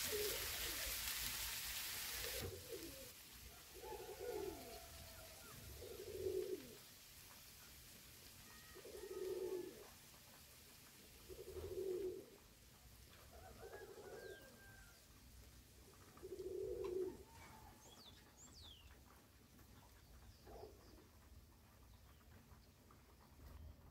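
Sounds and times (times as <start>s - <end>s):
pigeon cooing: 0.0s - 1.1s, 2.1s - 6.9s, 8.5s - 10.0s, 11.1s - 12.5s, 13.3s - 14.9s, 15.8s - 17.8s, 20.4s - 21.2s.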